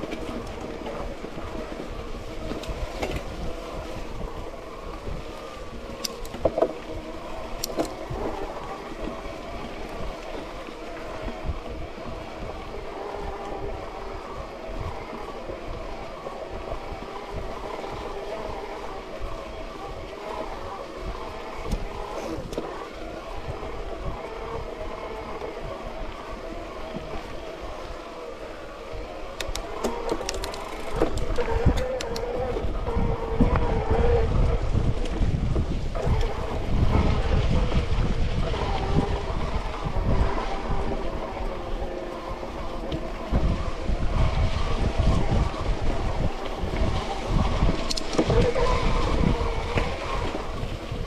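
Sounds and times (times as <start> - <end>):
bike rattling: 0.0 - 10.3, 29.4 - 33.0
bike tyres rolling on mud: 0.0 - 51.0.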